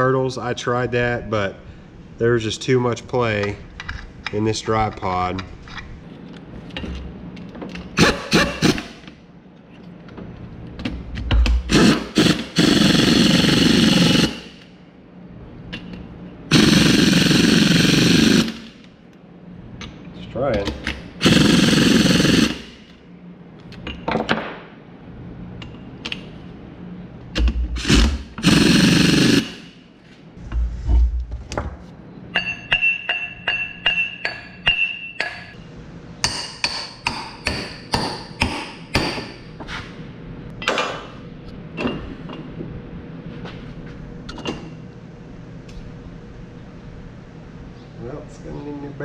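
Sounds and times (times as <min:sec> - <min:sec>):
pneumatic air tool bursts: 0:08.0 - 0:09.0, 0:11.5 - 0:14.6, 0:16.5 - 0:18.8, 0:21.2 - 0:22.8, 0:27.7 - 0:29.8
hammer ringing on steel: 0:32.4 - 0:35.6.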